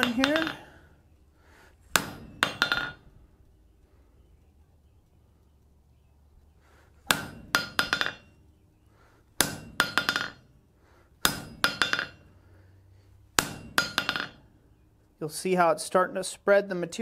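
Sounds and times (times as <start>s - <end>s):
hammer blows ringing on anvil: 7.1s - 8.4s, 9.4s - 10.4s, 11.2s - 12.3s, 13.4s - 14.4s.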